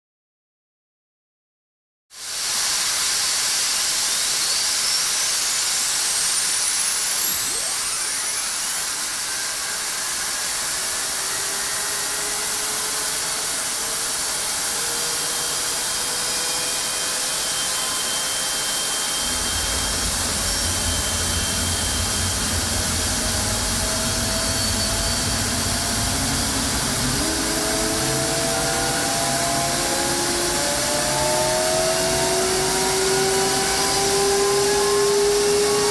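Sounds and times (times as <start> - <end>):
jet engine hiss and rising whine: 2.2 - 35.9
deep rumble: 19.2 - 31.5.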